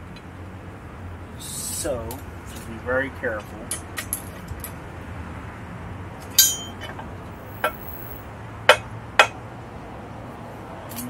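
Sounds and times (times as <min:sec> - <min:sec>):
tool clinking on metal: 0:06.4 - 0:07.0.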